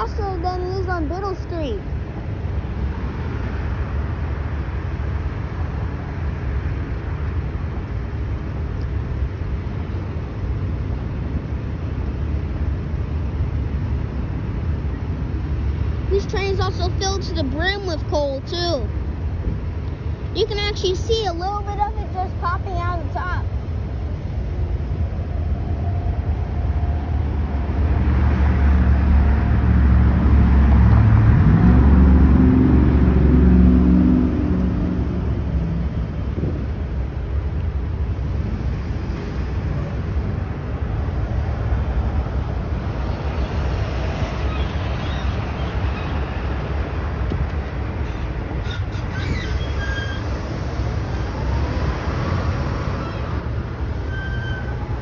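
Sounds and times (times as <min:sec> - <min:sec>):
freight train rumbling past: 0:00.0 - 0:55.0
street traffic: 0:00.0 - 0:55.0
vehicle engine accelerating: 0:26.3 - 0:49.0
truck squealing: 0:43.1 - 0:46.7, 0:48.0 - 0:55.0.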